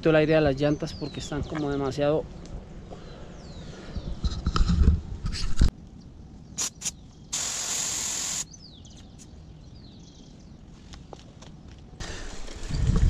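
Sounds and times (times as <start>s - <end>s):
air hissing from tyre valve: 6.6s - 8.5s.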